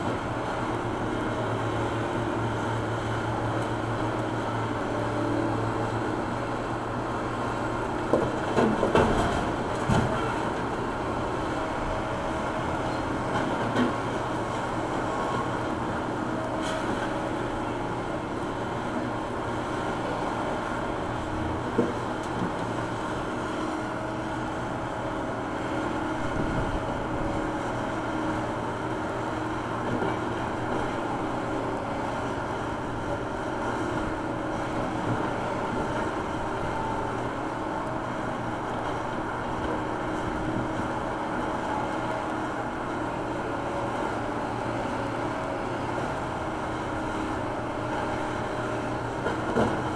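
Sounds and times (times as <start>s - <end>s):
diesel engine running: 0.0s - 49.9s.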